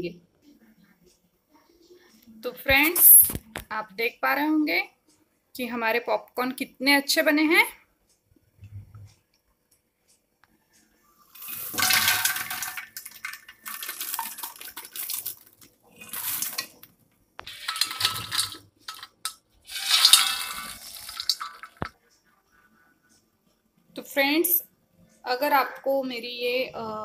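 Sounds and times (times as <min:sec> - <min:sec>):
popcorn rattling in steel bowl: 0:11.4 - 0:16.8, 0:17.4 - 0:21.9.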